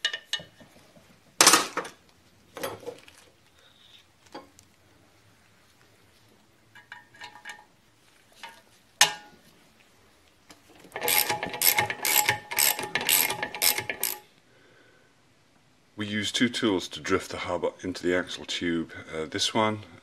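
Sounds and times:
ratchet wrench clicking: 10.9s - 14.3s.

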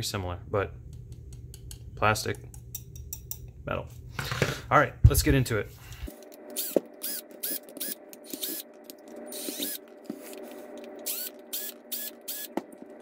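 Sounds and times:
bit and screws clicking: 6.2s - 9.9s
cordless drill motor whine: 6.5s - 8.7s, 9.3s - 12.6s.

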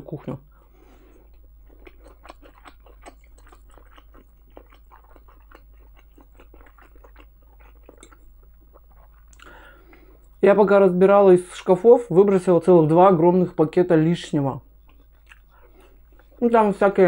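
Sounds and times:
person chewing food: 0.5s - 10.4s, 14.7s - 16.6s.

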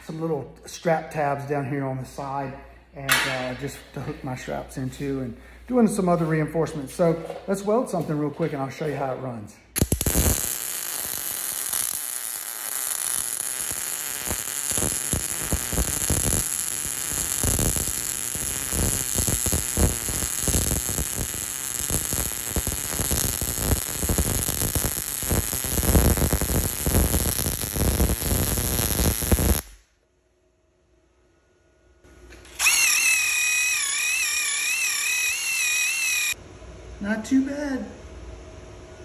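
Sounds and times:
welding arc crackling and sizzling: 9.7s - 29.9s, 32.5s - 36.4s.

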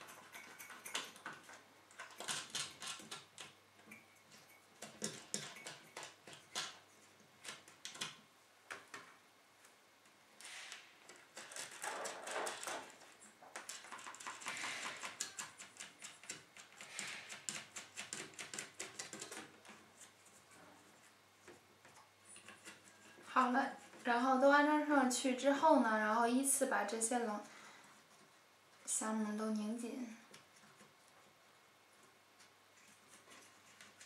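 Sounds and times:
light metal rubbing: 0.0s - 7.8s, 10.5s - 25.5s.

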